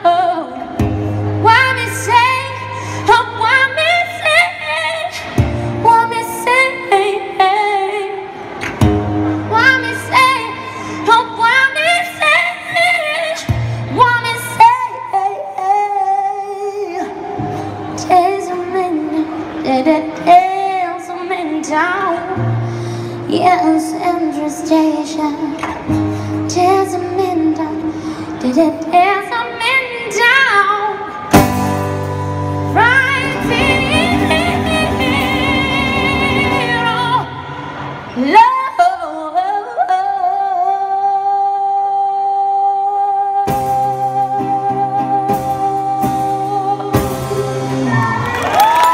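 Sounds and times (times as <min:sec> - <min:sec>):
woman singing into a microphone: 0:00.0 - 0:48.9
acoustic guitar: 0:00.1 - 0:38.6, 0:40.6 - 0:48.5.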